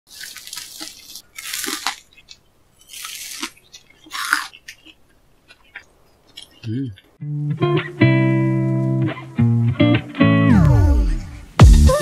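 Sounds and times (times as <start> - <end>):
crispy cutlet crunching: 0.1 - 7.1.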